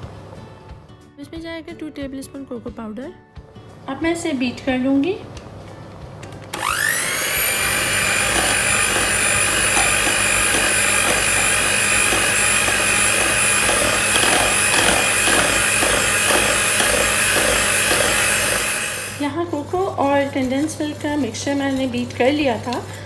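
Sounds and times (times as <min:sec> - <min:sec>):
electric hand mixer whine: 0:06.5 - 0:19.4.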